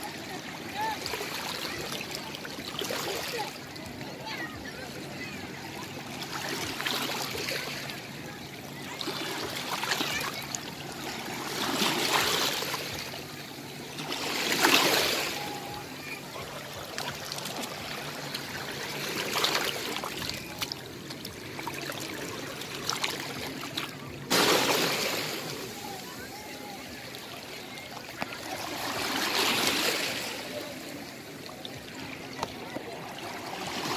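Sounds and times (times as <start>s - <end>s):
loud rush of water: 0.0s - 3.5s, 6.2s - 31.0s
seawater washing over rocks: 8.8s - 33.9s.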